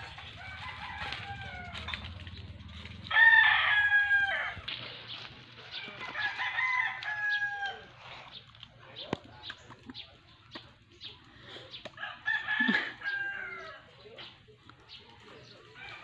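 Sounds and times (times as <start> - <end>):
roosters crowing: 0.0 - 8.4, 11.9 - 14.2, 15.4 - 16.0.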